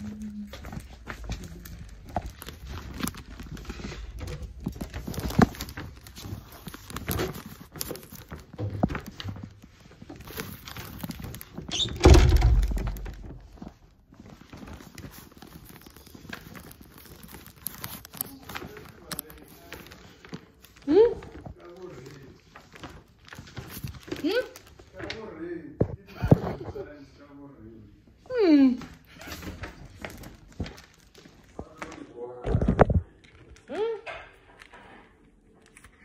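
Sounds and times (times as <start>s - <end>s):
rustling of flower wrapping: 0.0s - 36.0s
loud thump: 12.0s - 13.2s.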